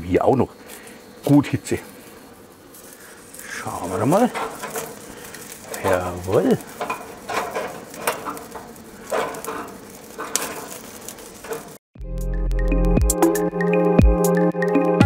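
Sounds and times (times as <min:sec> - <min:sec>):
meat sizzling on a grill: 0:00.0 - 0:11.8
metal skewers clicking: 0:03.4 - 0:11.8.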